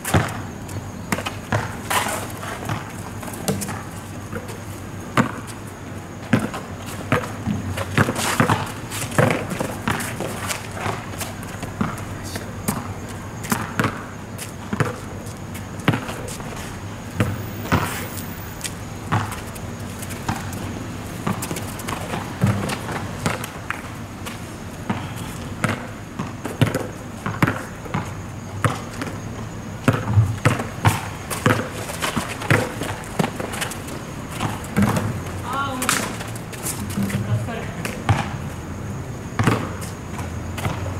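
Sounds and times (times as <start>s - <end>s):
running footsteps: 0.0s - 25.6s
basketball bouncing on asphalt: 0.0s - 40.9s.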